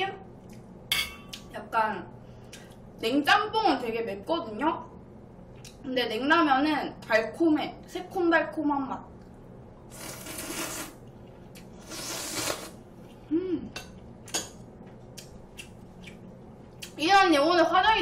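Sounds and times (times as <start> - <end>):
person slurping noodles: 9.9 - 11.0, 11.7 - 12.8
person humming: 13.3 - 13.8.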